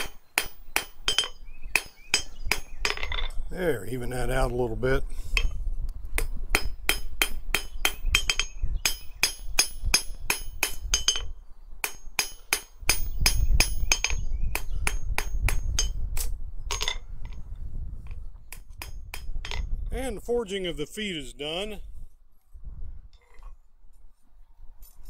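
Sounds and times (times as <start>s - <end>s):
hammer striking iron on anvil: 0.0s - 3.3s, 6.2s - 17.0s, 18.5s - 19.7s.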